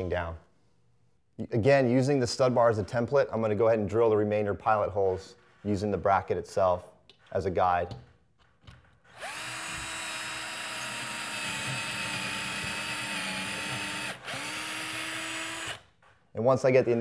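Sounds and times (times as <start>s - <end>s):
cordless drill drilling into wood: 9.1s - 15.9s.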